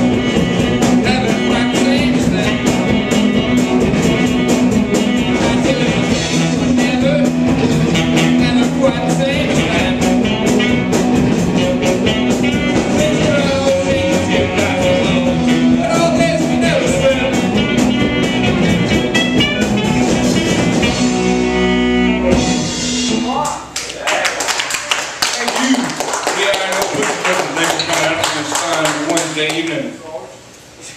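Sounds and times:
saxophone: 0:00.0 - 0:23.4
live rock band playing: 0:00.0 - 0:23.7
person singing: 0:00.8 - 0:03.6, 0:04.9 - 0:20.7.

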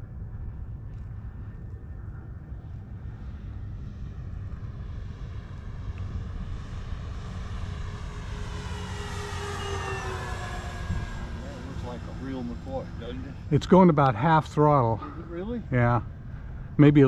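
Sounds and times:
model plane motors whining: 0:05.8 - 0:13.5.

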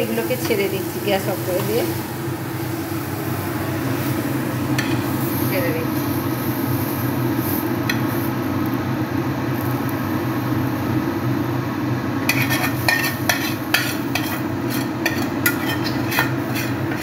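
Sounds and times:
steady low hum: 0:00.0 - 0:17.0
metal spoon scraping frying pan: 0:12.3 - 0:17.0.

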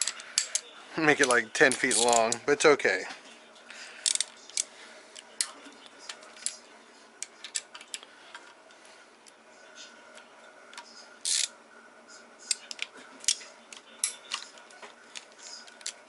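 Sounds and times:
ratchet clicking on metal: 0:11.2 - 0:11.5.

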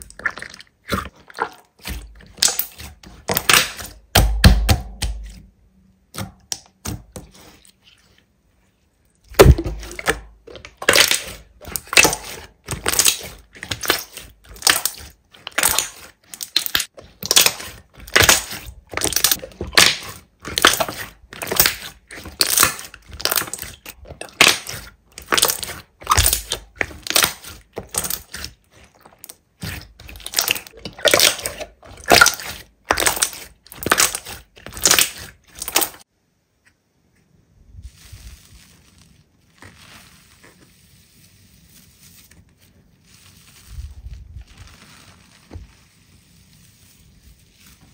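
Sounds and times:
slime crackling and popping: 0:09.3 - 0:36.0.

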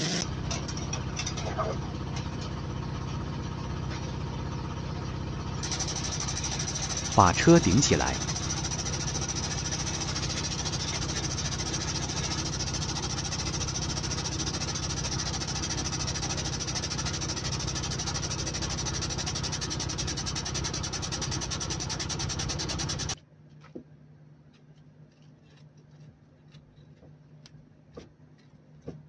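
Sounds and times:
air-hydraulic jack pump pulsing: 0:00.0 - 0:00.5, 0:05.6 - 0:23.2.

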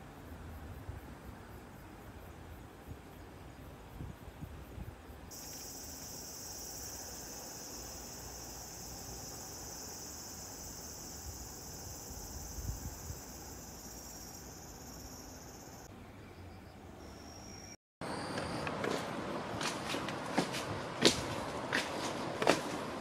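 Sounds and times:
cicadas buzzing: 0:00.0 - 0:15.9.

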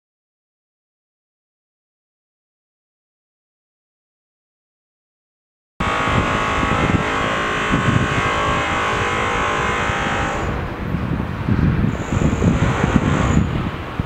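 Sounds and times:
dense high whine: 0:05.8 - 0:14.0
traffic rumble: 0:05.8 - 0:14.0
wind buffeting microphone: 0:05.8 - 0:14.0.

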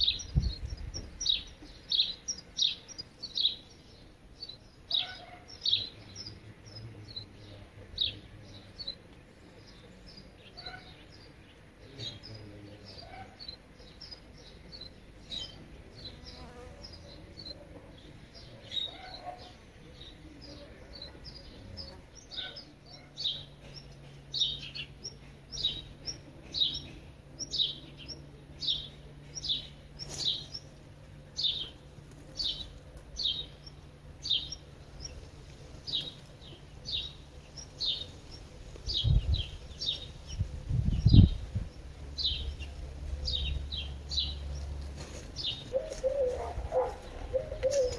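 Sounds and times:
birds chirping: 0:00.0 - 0:47.9.

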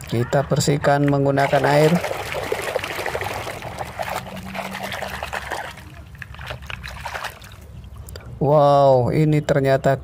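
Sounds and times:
hand splashing water in bucket: 0:01.0 - 0:07.6.

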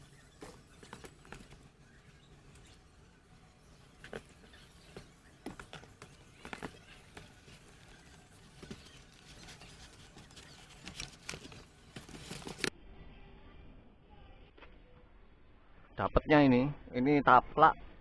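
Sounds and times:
foam and cardboard rubbing: 0:04.0 - 0:12.7.

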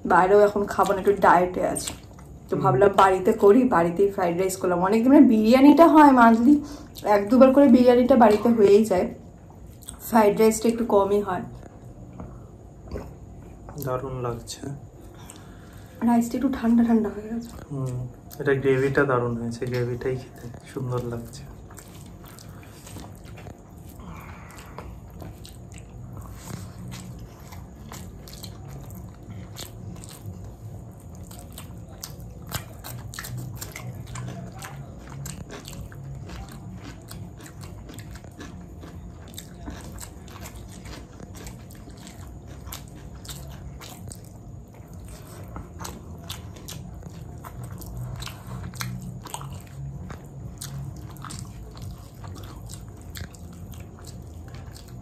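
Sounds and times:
person chewing food: 0:09.3 - 0:10.0, 0:11.5 - 0:16.0, 0:17.4 - 0:55.0
crunch of food: 0:17.4 - 0:55.0.

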